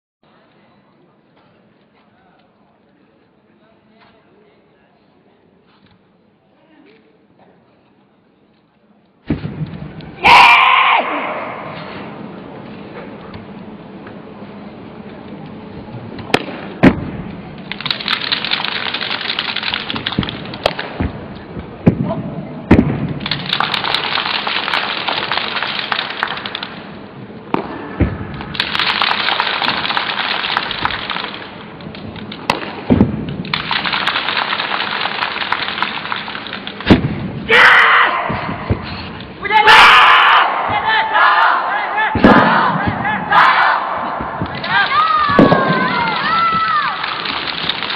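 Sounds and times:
person shouting: 0:39.4 - 0:42.2.

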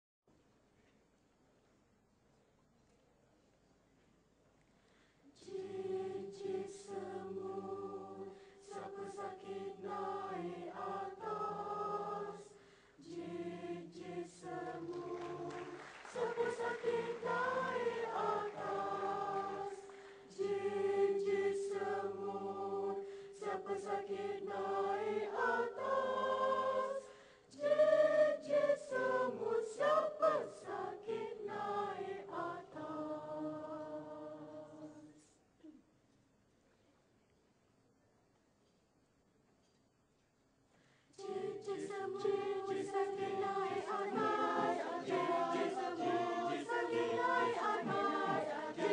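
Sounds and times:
mixed choir singing: 0:05.4 - 0:35.3, 0:41.2 - 0:48.9.

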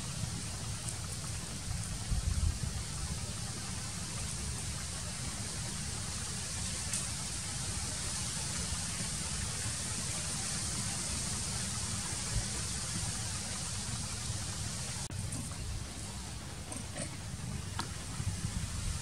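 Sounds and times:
high hiss: 0:00.0 - 0:19.0
low unsteady rumble: 0:11.6 - 0:19.0.

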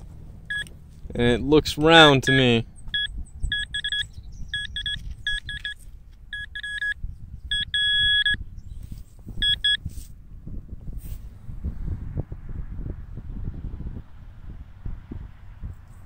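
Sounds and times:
metal detector beeping: 0:00.5 - 0:00.7, 0:02.2 - 0:08.4, 0:09.4 - 0:09.8.

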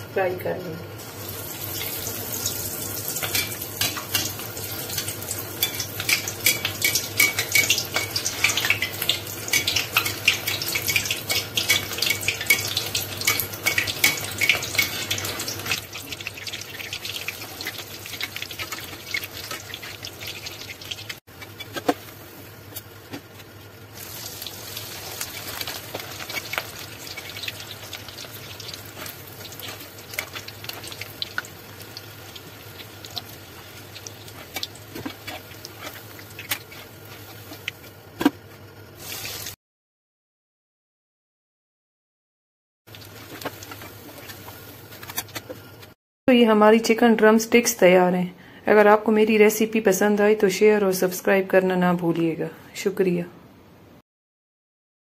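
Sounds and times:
chicken deep-frying in oil: 0:00.0 - 0:39.6, 0:42.9 - 0:46.0.

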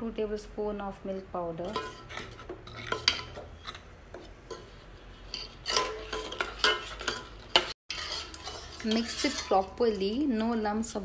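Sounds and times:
spoon scraping a metal pot: 0:01.6 - 0:10.2.

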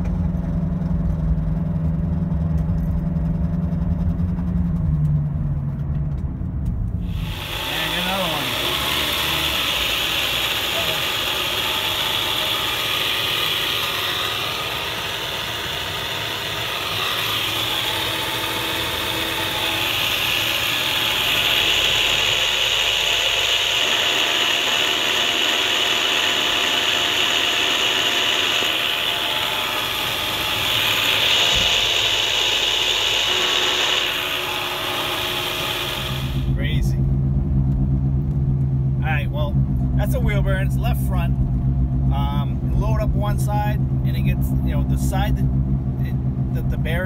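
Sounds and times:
high-pitched bearing whirring: 0:07.0 - 0:37.0.

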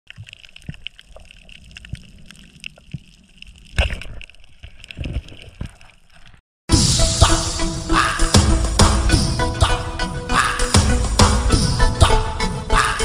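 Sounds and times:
water rushing: 0:00.1 - 0:06.4.

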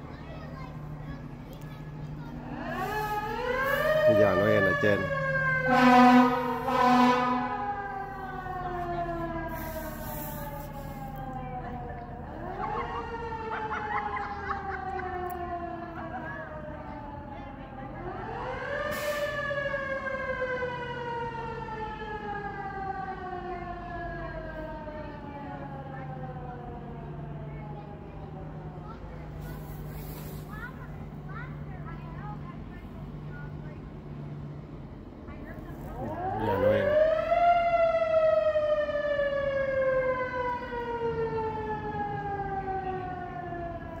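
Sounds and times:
low engine rumble: 0:00.0 - 0:44.0
fire truck siren wailing: 0:01.1 - 0:33.2, 0:34.6 - 0:44.0
short hiss: 0:29.7 - 0:30.6.

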